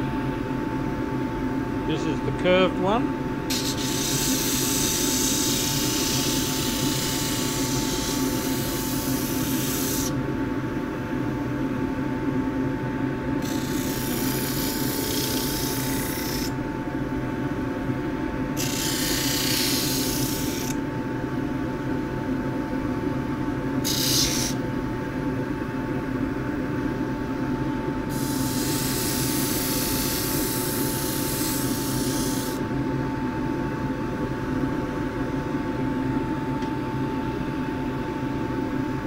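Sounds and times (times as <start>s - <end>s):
wood sanding hiss: 3.5s - 10.1s, 23.9s - 24.6s, 28.1s - 32.6s
lathe humming: 18.6s - 20.7s.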